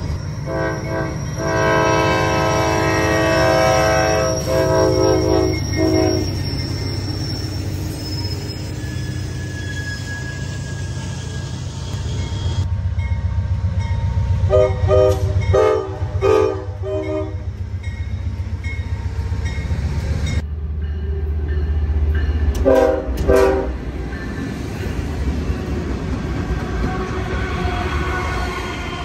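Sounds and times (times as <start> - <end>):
passing train rumble: 0.0 - 29.0
locomotive horn blasts: 0.4 - 6.3, 14.5 - 17.5, 22.6 - 23.8.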